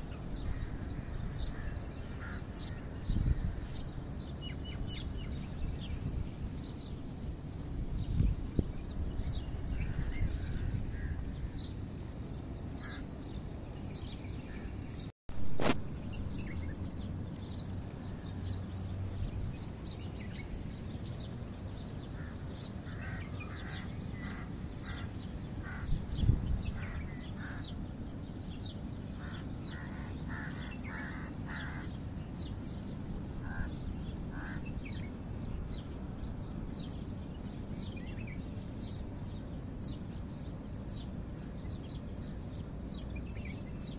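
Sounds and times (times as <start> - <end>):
birds chirping: 0.0 - 43.9
low background hum: 0.0 - 43.9.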